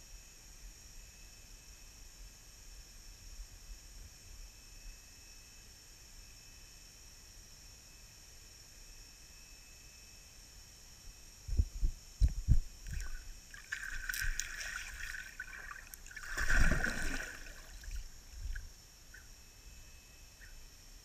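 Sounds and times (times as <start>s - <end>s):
rushing water underwater: 12.8s - 18.7s.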